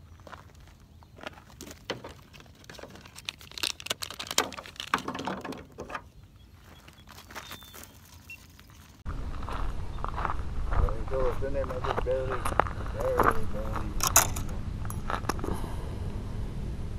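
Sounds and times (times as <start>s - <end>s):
fishing tackle clicks and crinkling: 2.3s - 5.1s.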